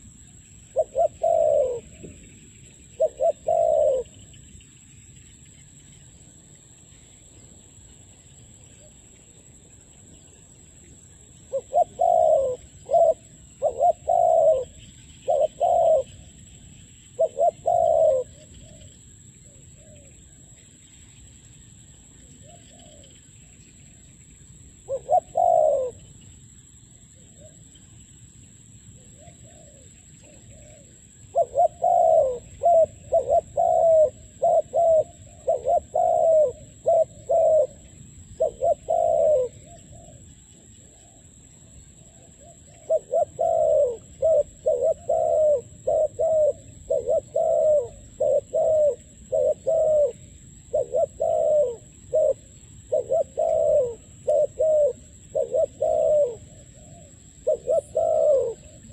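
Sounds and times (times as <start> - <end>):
dove cooing: 0.0 - 4.4, 11.4 - 20.3, 22.2 - 23.6, 24.8 - 26.2, 29.0 - 58.9.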